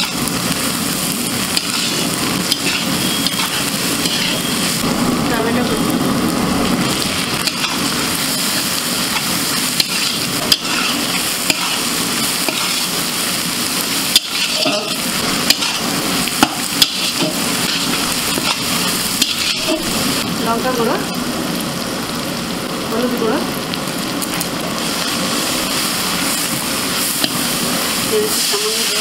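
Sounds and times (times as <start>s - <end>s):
onions sizzling in oil: 0.0s - 29.0s
metal spatula scraping pan: 1.5s - 4.7s, 7.4s - 13.0s, 14.1s - 19.8s.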